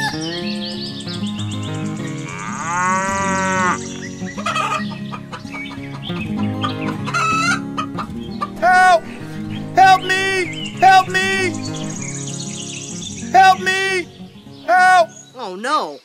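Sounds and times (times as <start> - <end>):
background music: 0.0 - 15.6
cow mooing: 2.2 - 3.9
hens clucking: 2.2 - 12.2
rooster crowing: 2.3 - 3.8.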